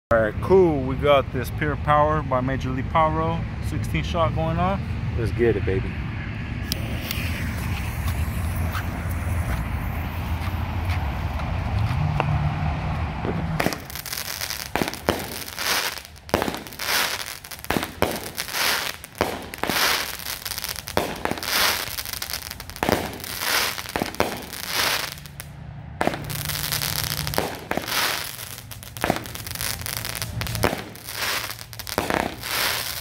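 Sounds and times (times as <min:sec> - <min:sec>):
firework launch bangs: 0:13.2 - 0:25.4, 0:26.0 - 0:33.0
firework crackling break: 0:13.3 - 0:33.0.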